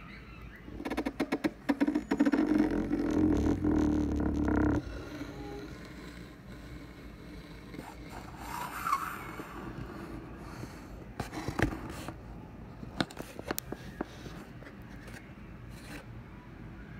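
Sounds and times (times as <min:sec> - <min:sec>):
scraping and rubbing: 0:00.7 - 0:12.2.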